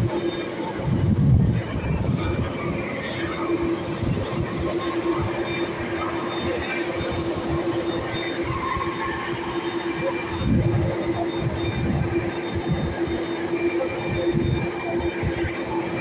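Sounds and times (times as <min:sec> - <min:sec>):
wind buffeting microphone: 0:00.0 - 0:05.2
high thin whine: 0:00.0 - 0:16.0
jet engine whine and hum: 0:00.0 - 0:16.0.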